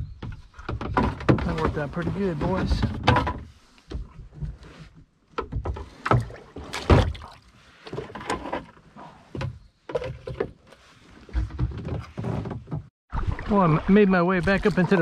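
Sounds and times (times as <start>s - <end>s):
paddle knocking against hull: 5.3s - 8.6s
paddle strokes and splashes: 5.7s - 9.4s, 13.1s - 15.0s.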